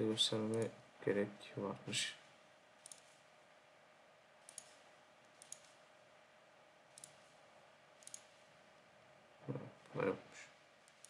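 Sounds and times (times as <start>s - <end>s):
faint steady hum: 0.0s - 11.0s
computer mouse clicks: 2.8s - 3.2s, 4.4s - 5.8s, 6.9s - 7.4s, 8.0s - 8.4s.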